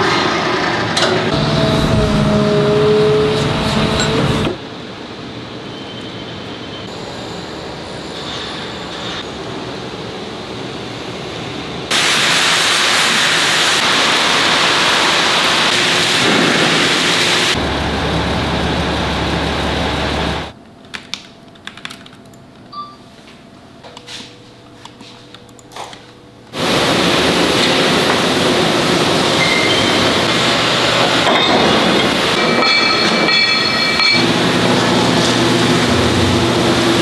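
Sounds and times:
deep hum: 0:01.3 - 0:04.6
loud steady rushing noise: 0:09.2 - 0:20.6, 0:26.5 - 0:37.0.

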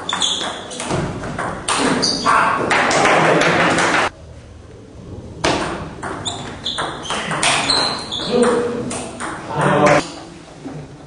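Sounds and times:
table tennis ball hits and bounces: 0:00.0 - 0:04.1, 0:05.4 - 0:10.0.

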